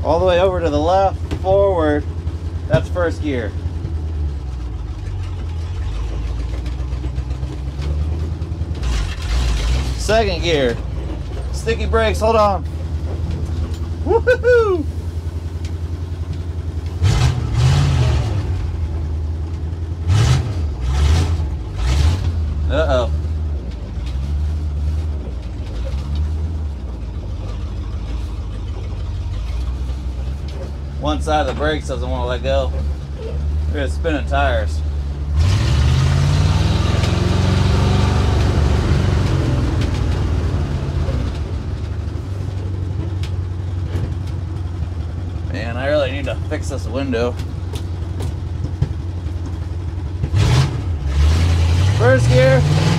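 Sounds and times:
truck engine revving under load: 0.0s - 52.9s.

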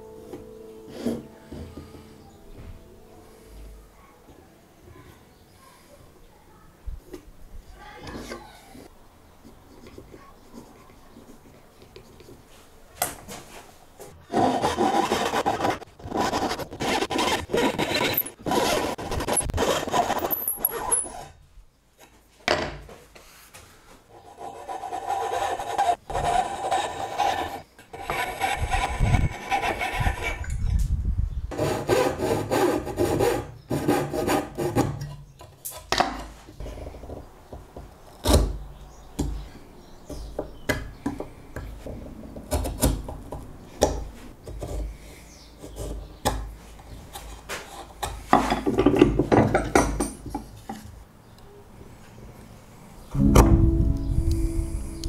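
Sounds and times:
hand saw rasping strokes: 14.3s - 21.3s, 24.1s - 30.6s, 31.5s - 34.9s.

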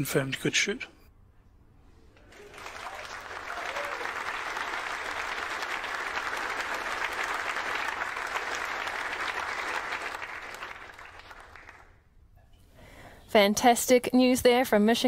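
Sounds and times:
people applauding: 2.2s - 12.0s.

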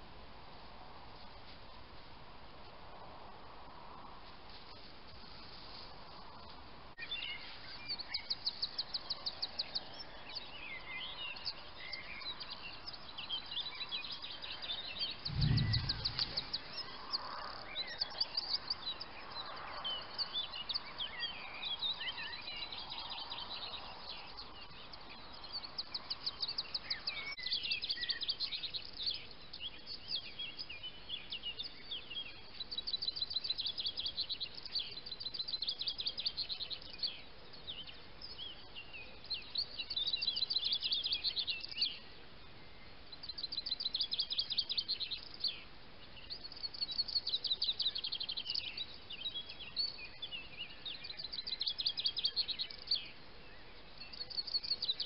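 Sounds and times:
birds singing and chirping: 7.0s - 55.0s
low thump: 15.3s - 16.6s.

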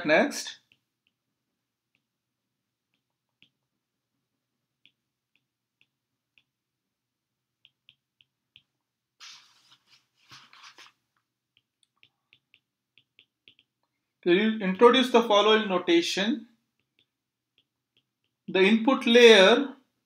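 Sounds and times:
stylus tapping glass screen: 0.5s - 9.1s, 10.8s - 15.4s, 16.6s - 18.7s
rustling noises: 9.2s - 11.2s.

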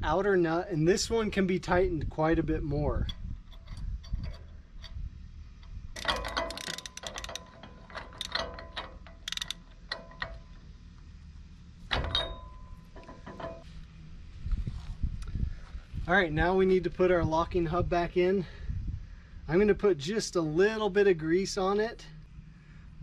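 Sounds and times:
ratchet clicking: 5.6s - 10.6s
metal tools clinking: 6.0s - 10.5s
ringing metal clang: 11.9s - 13.6s.

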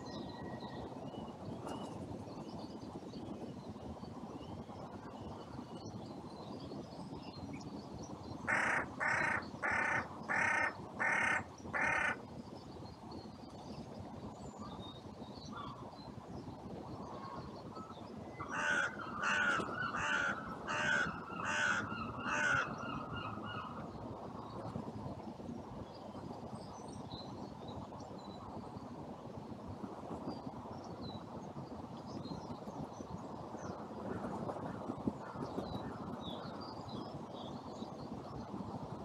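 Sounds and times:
crow cawing: 8.5s - 12.2s, 18.4s - 22.8s.

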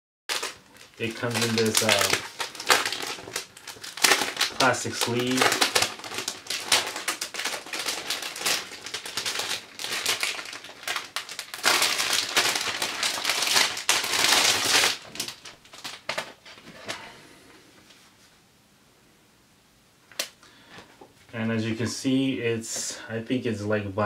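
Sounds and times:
plastic sleeve crinkling: 0.3s - 16.9s.

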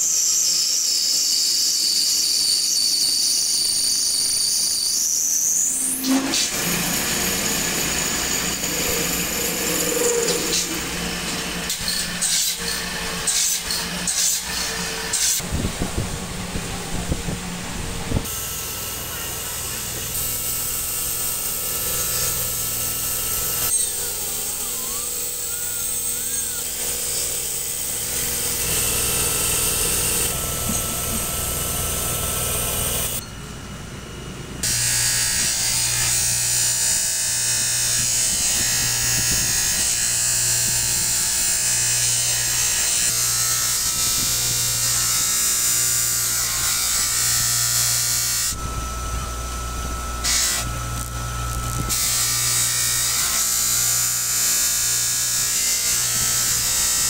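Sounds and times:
power tools whining: 1.1s - 33.4s, 34.5s - 57.0s.

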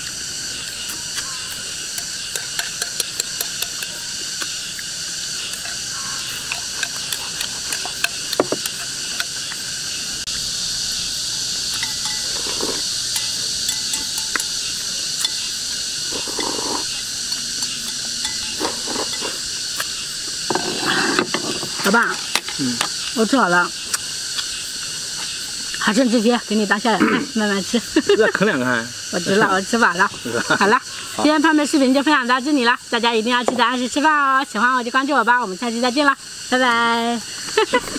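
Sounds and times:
insects chirring: 0.0s - 37.9s
chopsticks and bowls clicking: 2.0s - 4.5s, 5.5s - 9.7s, 11.7s - 15.4s, 16.1s - 19.4s
person chewing: 11.6s - 14.6s, 15.2s - 19.9s.

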